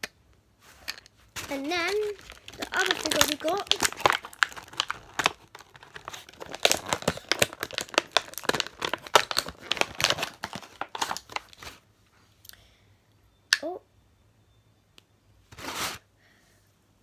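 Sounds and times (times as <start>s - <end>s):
plastic packaging crinkling: 0.8s - 11.8s.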